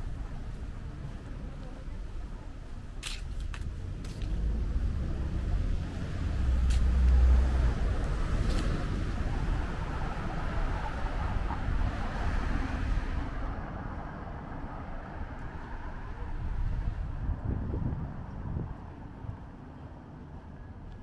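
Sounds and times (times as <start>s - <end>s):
car rumble: 0.0s - 20.5s
low traffic hum: 0.0s - 21.0s.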